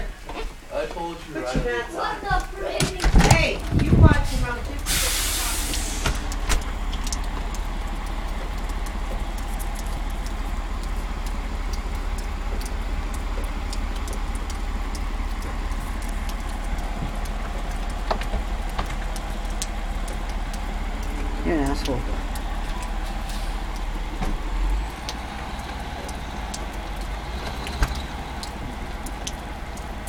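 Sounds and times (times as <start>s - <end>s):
diesel engines idling: 0.0s - 30.0s.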